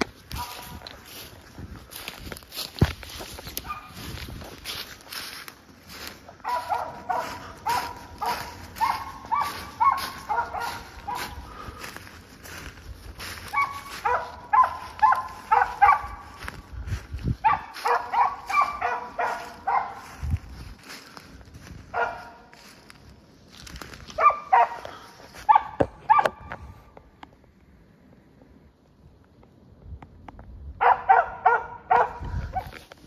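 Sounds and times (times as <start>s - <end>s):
dog barking: 0.3s - 0.8s, 3.6s - 4.0s, 6.4s - 11.5s, 13.4s - 16.4s, 17.4s - 20.2s, 21.9s - 22.5s, 24.1s - 26.4s, 30.8s - 32.8s.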